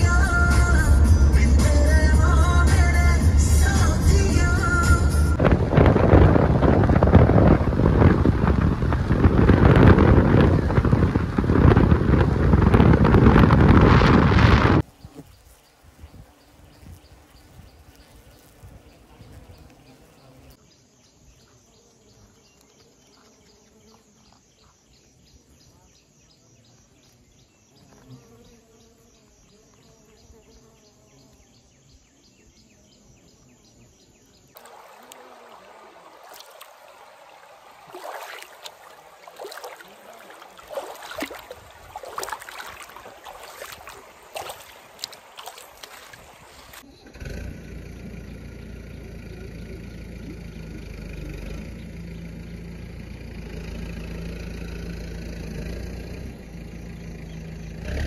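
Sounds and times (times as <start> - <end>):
feet splashing in a stream: 34.6 - 46.8
running water: 34.6 - 46.8.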